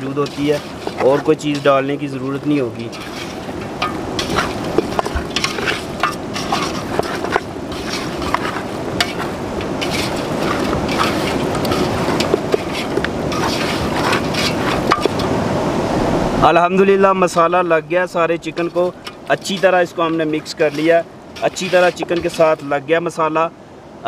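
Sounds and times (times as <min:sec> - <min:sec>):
pieces knocking against metal pot: 0:03.0 - 0:15.2.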